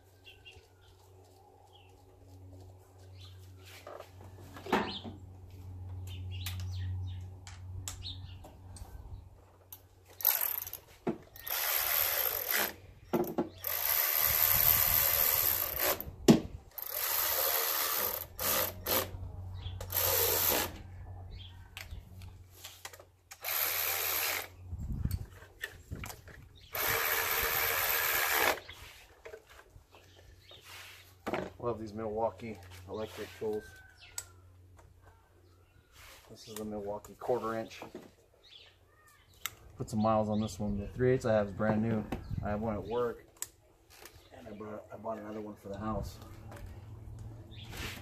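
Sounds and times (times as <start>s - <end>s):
cordless electric ratchet whirring: 10.2s - 12.8s, 13.6s - 16.1s, 16.7s - 19.2s, 19.8s - 20.8s, 23.3s - 24.6s, 26.6s - 28.8s.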